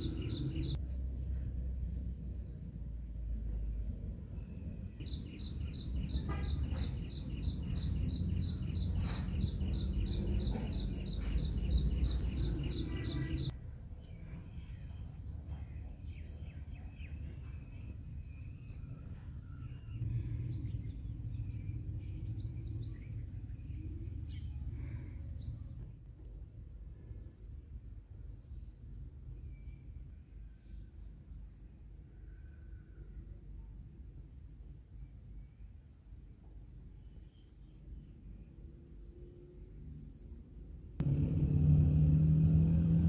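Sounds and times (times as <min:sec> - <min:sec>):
birds calling: 0:00.0 - 0:00.8, 0:05.0 - 0:13.5.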